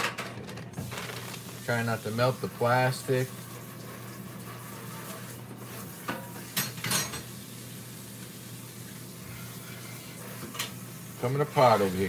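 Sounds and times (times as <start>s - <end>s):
kitchen clicks and clinks: 6.1s - 7.3s.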